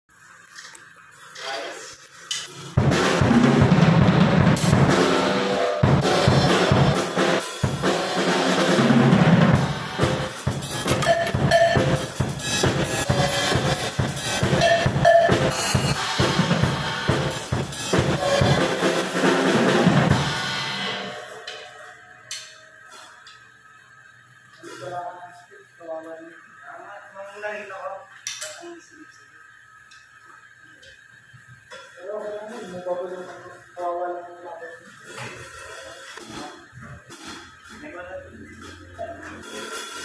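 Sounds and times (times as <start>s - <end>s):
acoustic drum kit playing: 2.6s - 21.7s, 35.1s - 40.0s.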